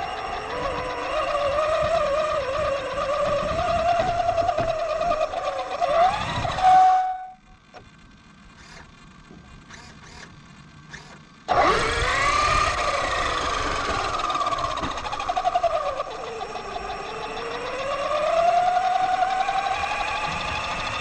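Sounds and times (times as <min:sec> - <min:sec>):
electric motor whine: 0:00.0 - 0:21.0.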